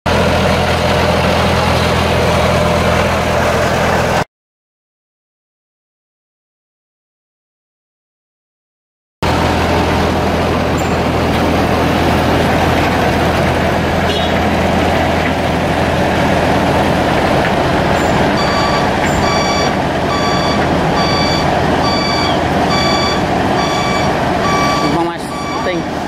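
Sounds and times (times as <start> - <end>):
diesel engine running: 0.1 - 4.3, 9.2 - 26.0
dump truck working: 0.1 - 4.3, 9.2 - 26.0
back-up alarm beeping: 18.0 - 26.0.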